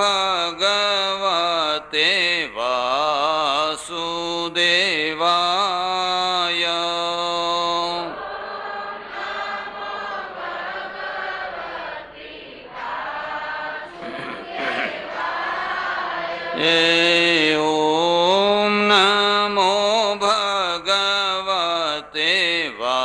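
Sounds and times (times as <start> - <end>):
man chanting into a microphone: 0.0 - 8.2, 14.0 - 15.0, 16.6 - 23.0
group of voices chanting: 8.1 - 16.9.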